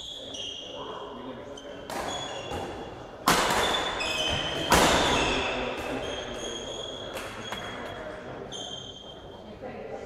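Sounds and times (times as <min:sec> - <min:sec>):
shoes squeaking on court floor: 0:00.0 - 0:02.9, 0:03.7 - 0:09.4
loud sharp bangs echoing: 0:03.2 - 0:06.0.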